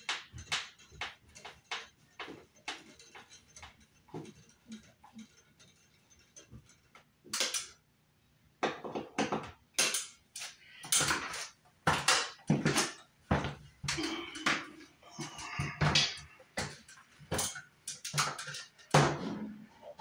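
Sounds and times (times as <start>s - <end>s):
screwdriver clicking on metal: 0.0s - 7.8s.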